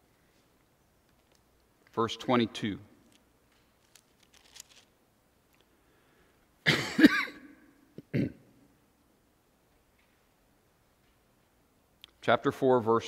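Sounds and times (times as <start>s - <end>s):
man coughing: 6.6s - 8.5s.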